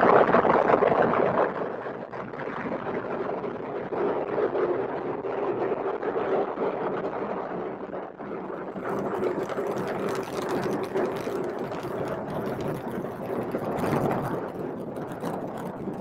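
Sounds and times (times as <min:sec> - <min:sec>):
distant rocket engine rumble: 0:07.4 - 0:16.0.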